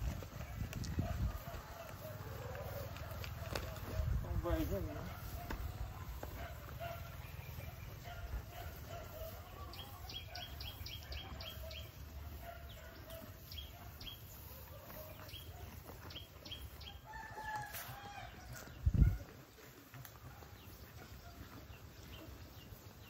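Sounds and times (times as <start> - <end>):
rooster crowing: 17.0 - 18.6.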